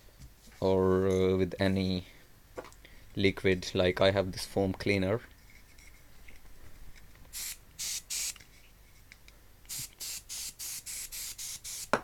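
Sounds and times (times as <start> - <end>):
aerosol spray hissing squirts: 7.3 - 8.4, 9.7 - 11.9.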